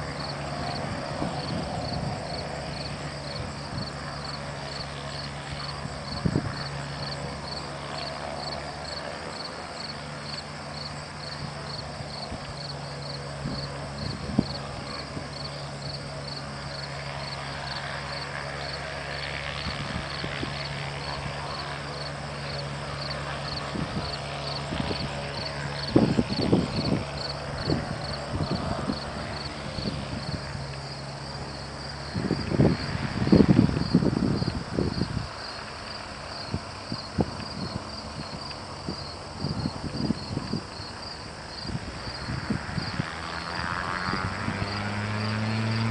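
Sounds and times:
crickets chirping: 0.0 - 45.6
distant gyroplane engine running: 0.0 - 45.9.

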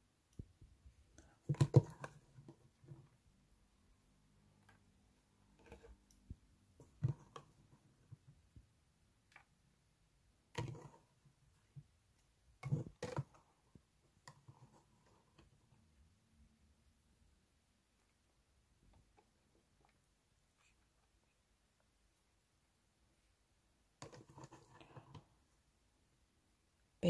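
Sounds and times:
plastic containers clicking and knocking: 1.2 - 3.1, 12.6 - 13.6.

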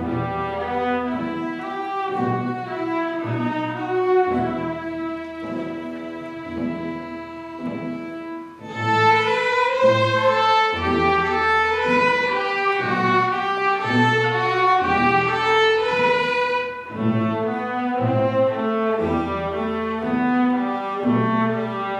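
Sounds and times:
low repeated cello and bass notes: 0.0 - 21.9
string orchestra playing: 0.0 - 21.9.

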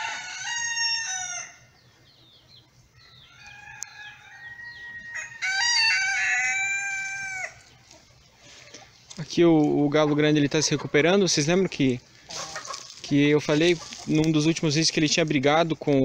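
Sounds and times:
rooster crowing: 0.0 - 1.7, 3.0 - 7.6.

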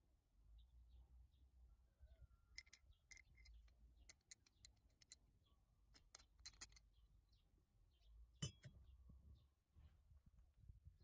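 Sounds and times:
metallic clicks and clinks: 2.6 - 5.2, 5.9 - 6.9.

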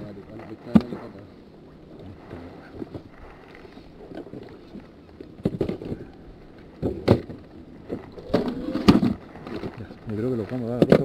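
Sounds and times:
hiss of wind and water: 0.0 - 10.7
knocks of fishing gear on boat: 0.4 - 1.1, 4.1 - 9.9, 10.5 - 11.0.

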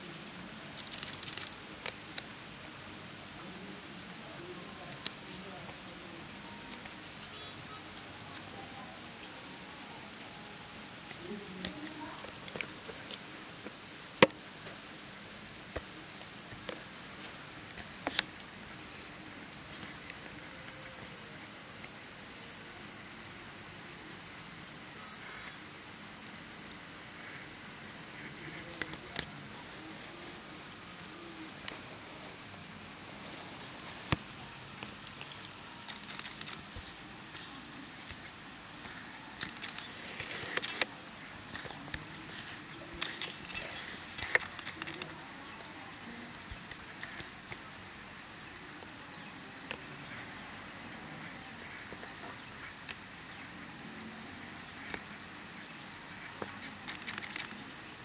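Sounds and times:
light rain hiss: 0.0 - 58.0
raindrops clicking: 0.6 - 2.3, 19.7 - 21.2, 28.5 - 29.5, 34.1 - 48.0, 56.2 - 57.7
rapid pattering ticks: 0.8 - 2.3, 34.8 - 37.5, 38.1 - 40.9, 41.5 - 47.9, 56.4 - 57.6.

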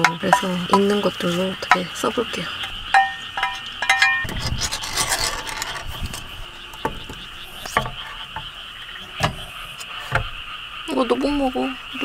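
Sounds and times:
chopsticks clinking on metal bowl: 0.0 - 1.9, 2.9 - 4.3
chopsticks scraping frying pan: 0.0 - 8.5
insects chirring: 0.0 - 12.0.

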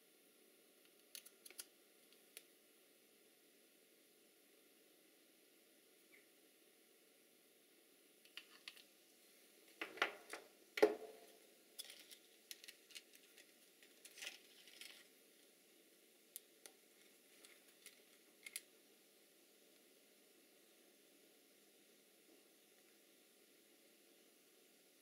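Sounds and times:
plastic adapter clicks and rattles: 0.9 - 1.7.

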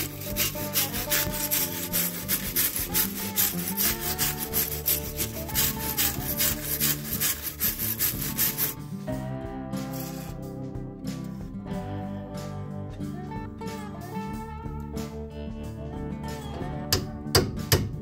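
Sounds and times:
wire brush scrubbing metal: 0.0 - 8.8, 9.9 - 10.4
background music: 0.0 - 18.0.

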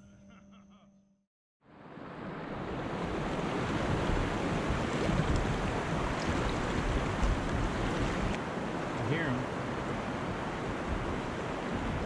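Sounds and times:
wind buffeting microphone: 2.8 - 12.0.

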